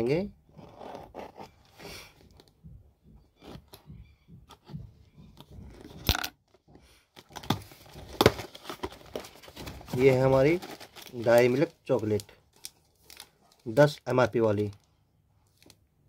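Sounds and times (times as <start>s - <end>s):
cardboard scraping and tearing: 7.3s - 12.2s.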